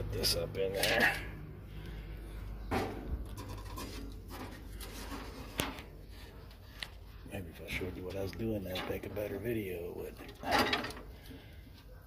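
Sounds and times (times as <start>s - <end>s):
scraping: 2.8s - 6.7s.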